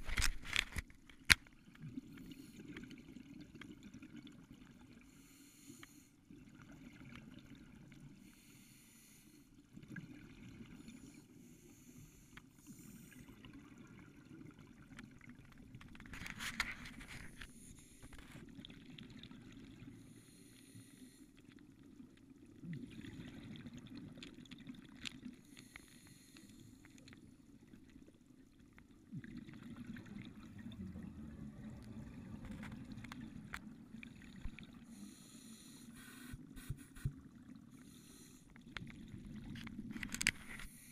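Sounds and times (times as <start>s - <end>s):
exhaled air bubbling underwater: 1.5s - 16.2s, 16.9s - 40.9s
scuba regulator breath hiss: 8.2s - 9.5s, 25.4s - 26.8s, 34.9s - 37.1s, 37.8s - 38.5s.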